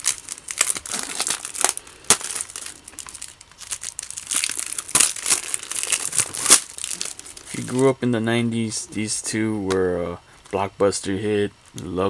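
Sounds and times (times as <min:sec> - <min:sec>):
plastic wrap crinkling: 0:00.0 - 0:08.0.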